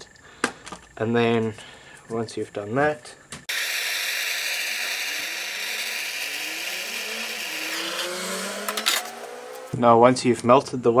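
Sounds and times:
blowtorch hissing: 3.5 - 9.7.

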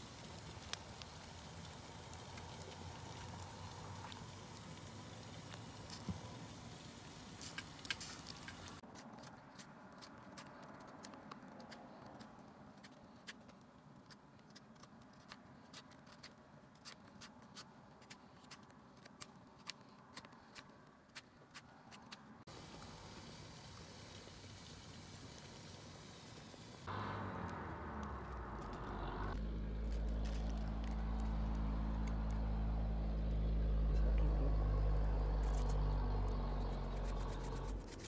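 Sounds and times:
low fire hum: 0.0 - 8.8, 22.5 - 38.0
wood fire crackling: 0.0 - 16.0, 16.8 - 38.0.

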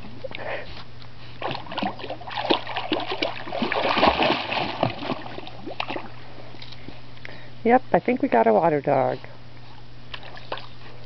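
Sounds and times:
puppy splashing in water: 1.3 - 6.2, 10.1 - 10.8.

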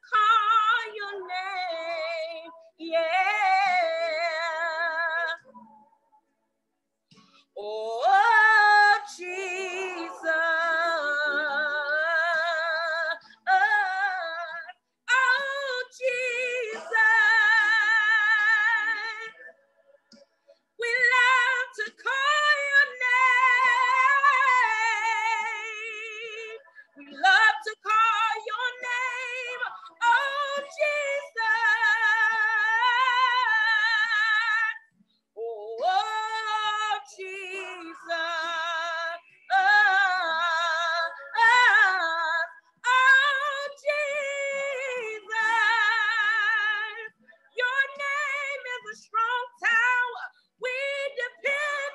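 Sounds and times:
woman singing solo: 7.6 - 19.3.

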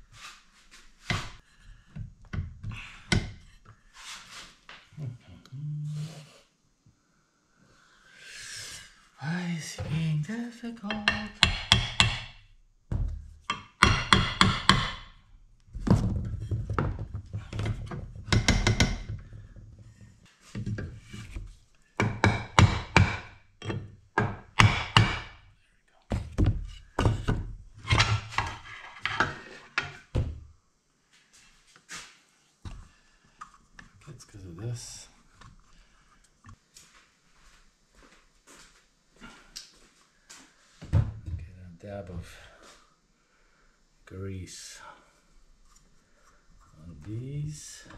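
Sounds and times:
hammer striking wooden block: 10.9 - 12.4, 13.5 - 15.2, 18.3 - 19.1, 22.0 - 25.4.

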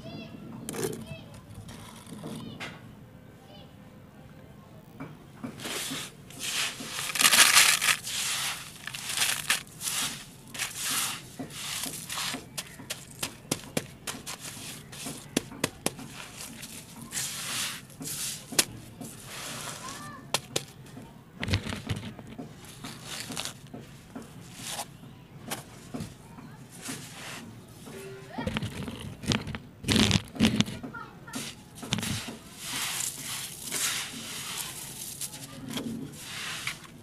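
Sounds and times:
stones clicking against plastic tub: 5.5 - 24.8, 28.4 - 37.0
gravel crunching and scraping: 5.5 - 24.9, 28.3 - 37.0.

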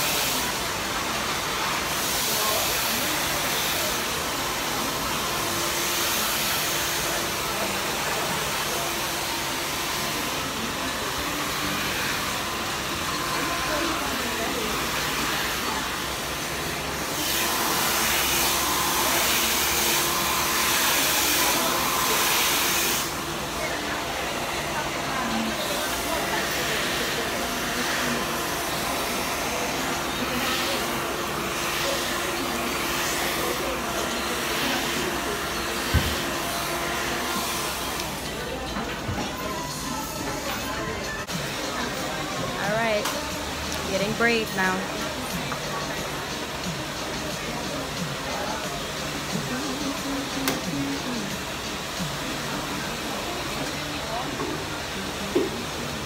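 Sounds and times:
hair dryer blowing: 0.0 - 38.5.

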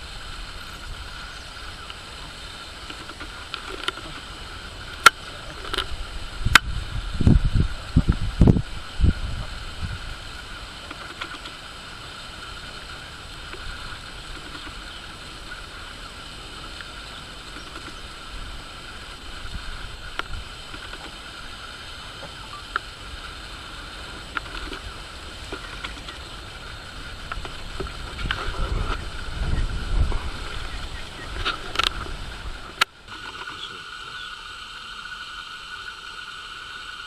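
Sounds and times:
faint clicks: 16.8 - 18.1.

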